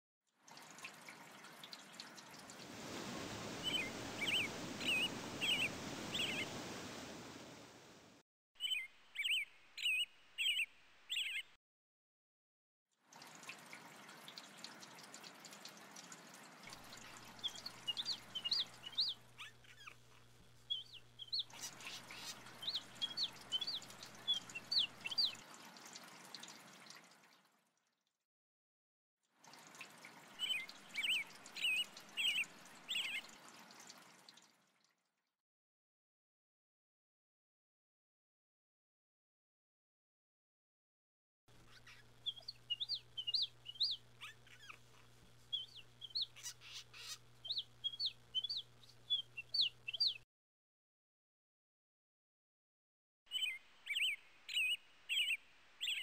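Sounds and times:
trickling running water: 0.4 - 11.5, 13.0 - 28.1, 29.3 - 35.1, 41.5 - 50.2, 53.3 - 56.0
small birds chirping: 0.8 - 8.0, 8.6 - 11.6, 13.4 - 27.1, 29.7 - 34.4, 41.5 - 50.2, 53.3 - 56.0.

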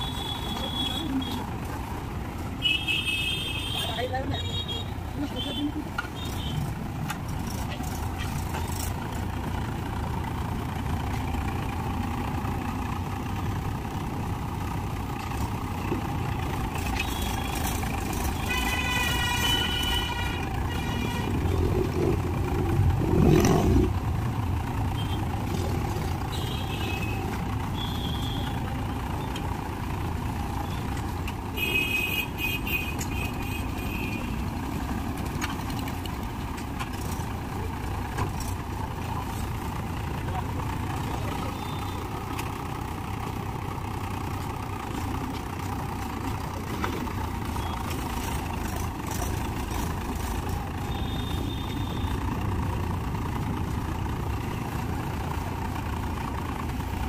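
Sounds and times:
tractor diesel engine running: 0.0 - 57.0
horn toots: 18.3 - 22.1.

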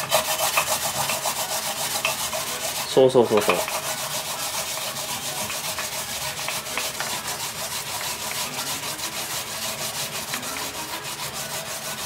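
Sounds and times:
yam rasping on grater: 0.0 - 12.0.

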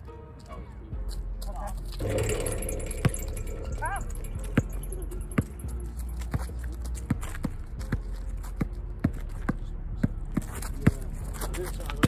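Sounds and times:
basketball bouncing on asphalt: 4.6 - 11.1.

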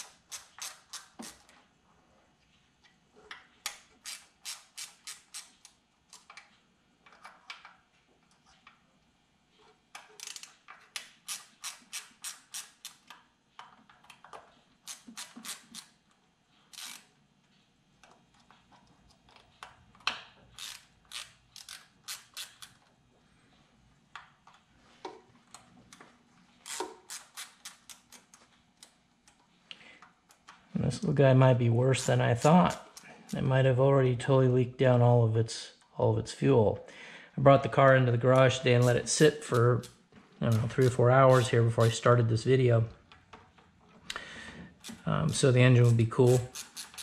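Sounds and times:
hand ratchet clicking: 0.0 - 1.5, 3.6 - 6.4, 10.0 - 13.2, 14.0 - 16.0, 16.7 - 17.1, 20.0 - 22.8, 26.6 - 28.9, 32.4 - 33.5, 37.8 - 42.1, 44.8 - 47.0.

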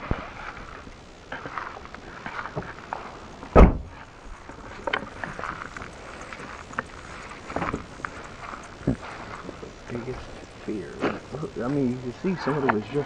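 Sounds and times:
small clicks and rustles: 0.1 - 9.8
car door shutting: 3.5 - 4.0.

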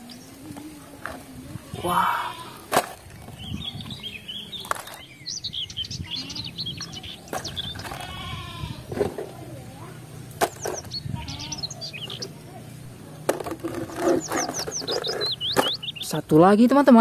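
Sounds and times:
birds chirping: 0.0 - 17.0
plastic toys clattering: 2.6 - 3.4, 4.6 - 5.1, 7.3 - 8.2, 10.4 - 10.9, 13.2 - 15.8.

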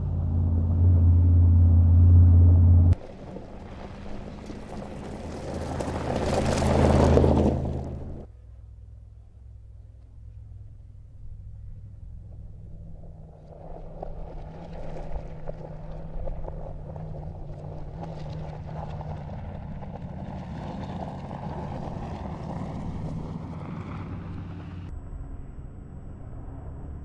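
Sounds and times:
engine running under load: 0.0 - 27.0
tyres on gravel: 2.9 - 8.3, 12.3 - 24.9.

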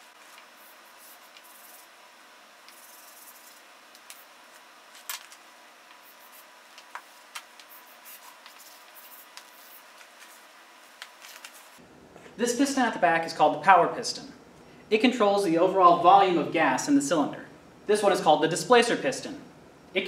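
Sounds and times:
chalk scratching on blackboard: 0.3 - 2.0, 2.7 - 4.3, 5.9 - 10.4
chalk tapping on board: 1.2 - 1.8, 2.7 - 4.3, 6.8 - 9.8.

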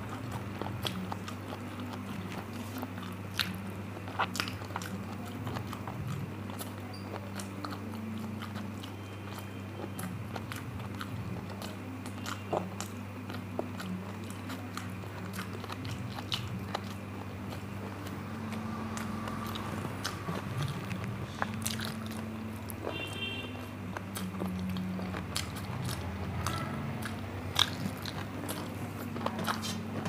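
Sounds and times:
chewing food: 0.0 - 30.0
steady low hum: 0.0 - 30.0
wet mouth clicks: 24.2 - 28.8.

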